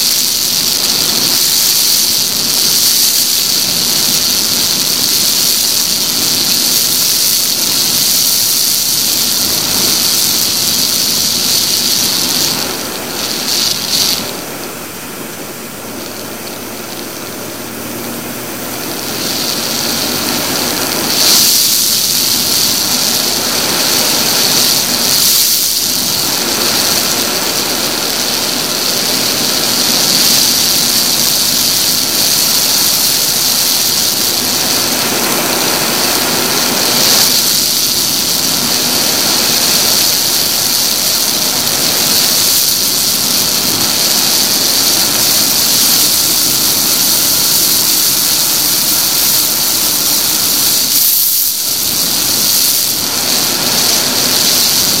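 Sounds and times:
motorcycle engine running: 0.0s - 55.0s
wind hissing over microphone: 0.0s - 55.0s.

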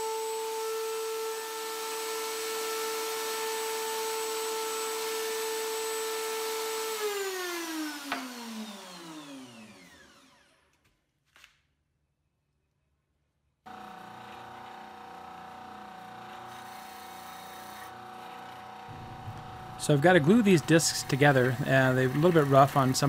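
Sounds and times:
router motor whine: 0.0s - 10.8s, 13.7s - 23.0s.

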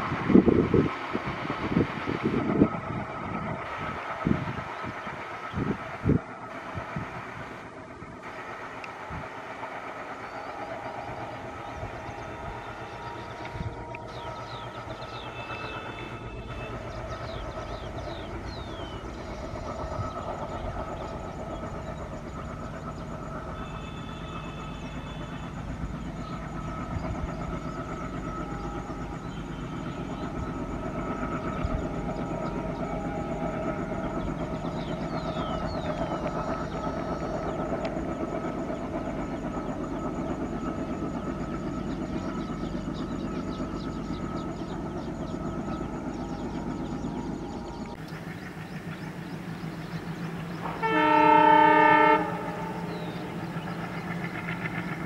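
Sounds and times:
diesel train engine and wheels: 0.0s - 55.0s.

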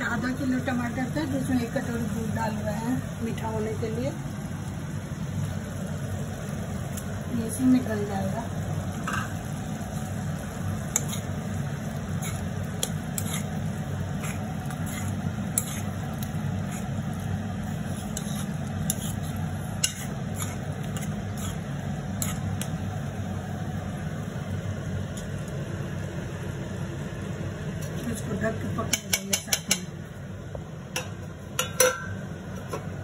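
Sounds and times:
steady low hum: 0.0s - 33.0s
sauce simmering with pops: 4.6s - 7.3s, 8.6s - 28.0s.

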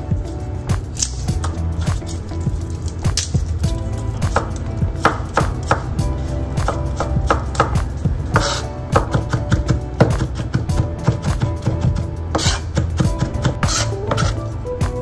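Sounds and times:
knife chopping on wooden board: 4.2s - 6.0s, 6.6s - 14.4s.

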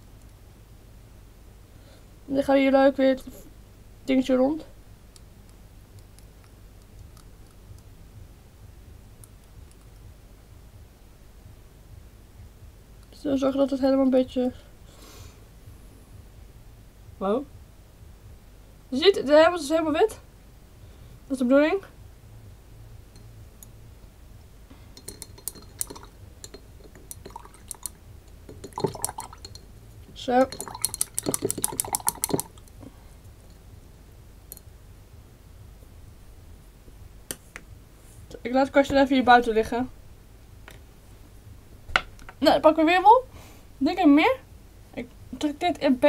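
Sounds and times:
low steady hum: 0.0s - 46.0s
paintbrush clicking against glass jar: 25.0s - 29.7s, 30.3s - 32.8s
brush clinking against glass: 25.0s - 32.6s.

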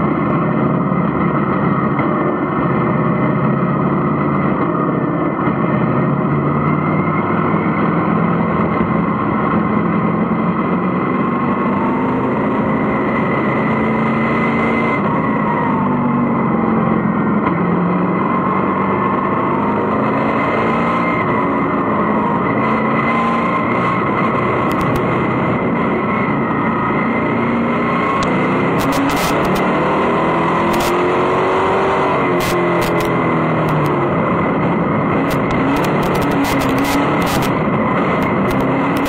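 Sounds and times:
race car engine running hard: 0.0s - 39.0s
sharp clicks: 24.7s - 25.0s, 28.2s - 29.6s, 30.7s - 31.0s, 32.4s - 33.9s, 35.2s - 37.6s, 38.2s - 39.0s.

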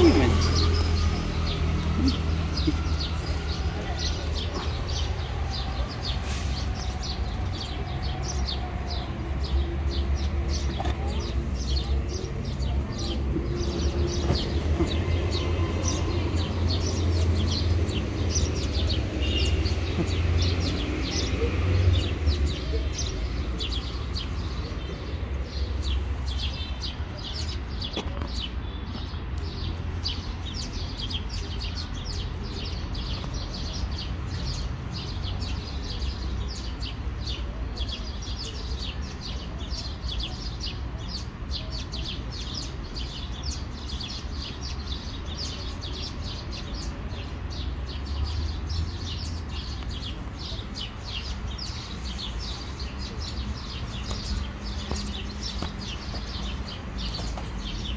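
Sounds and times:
small birds chirping: 0.0s - 57.9s.

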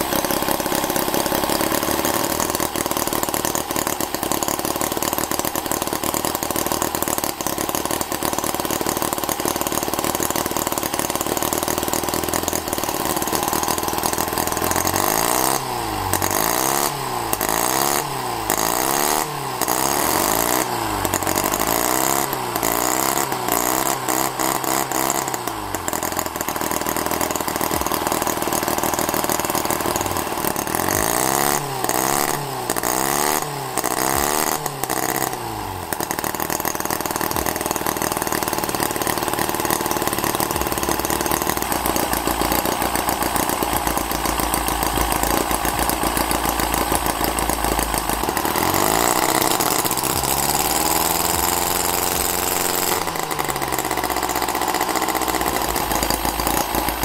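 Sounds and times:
model engine revving: 0.0s - 57.0s.

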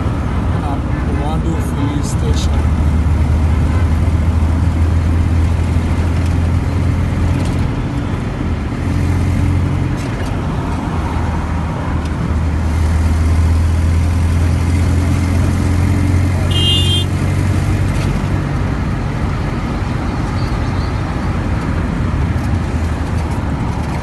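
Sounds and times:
car engine hum: 0.0s - 24.0s.

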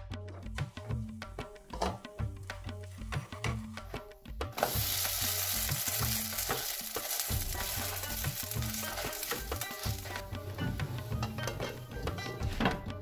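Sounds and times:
background music with drum beat: 0.0s - 13.0s
flatbread sizzling in hot oil: 4.5s - 11.2s.

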